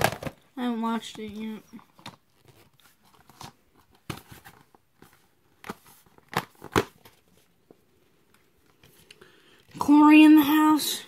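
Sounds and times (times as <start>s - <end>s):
plastic cases clicking: 0.0s - 0.4s.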